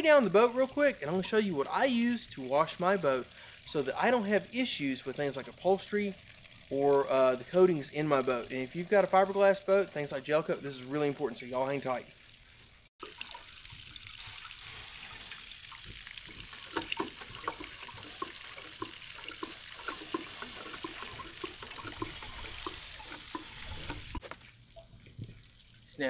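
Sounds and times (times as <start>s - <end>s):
water splashing on ground: 13.0s - 26.0s.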